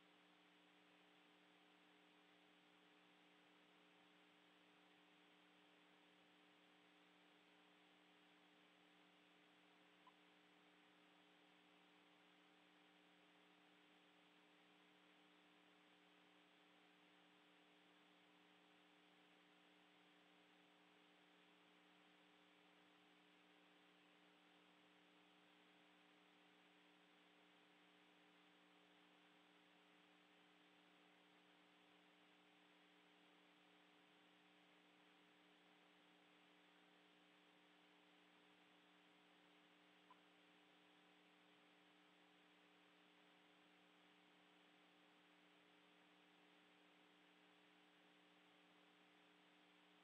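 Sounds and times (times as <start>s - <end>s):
faint steady hiss: 0.0s - 50.0s.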